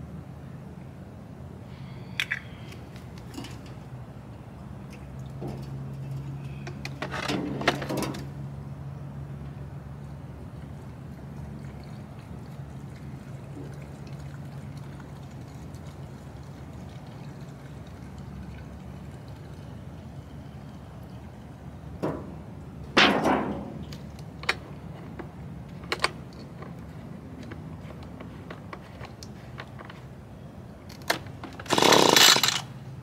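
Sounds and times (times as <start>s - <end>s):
fuel pouring into tank: 10.4s - 21.8s.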